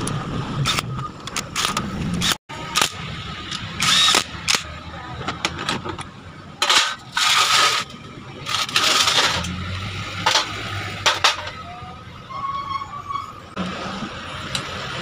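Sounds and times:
loud harsh metal noises: 0:06.6 - 0:11.7.

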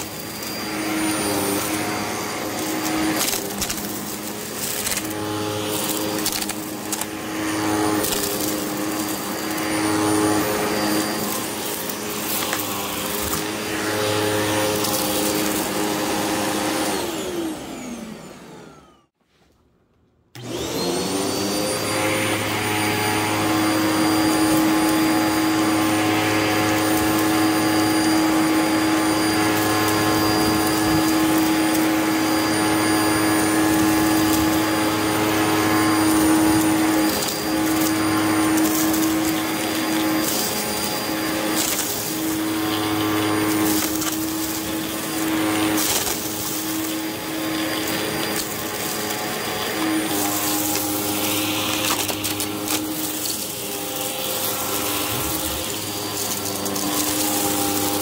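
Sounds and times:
vacuum cleaner running: 0:00.0 - 0:19.2, 0:20.4 - 0:58.0
debris clicking in vacuum: 0:01.5 - 0:07.2, 0:33.5 - 0:58.0.

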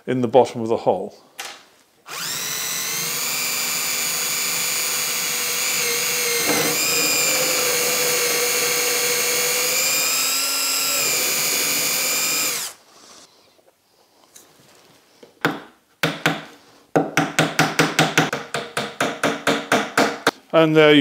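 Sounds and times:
cordless drill boring wood: 0:02.1 - 0:12.8.

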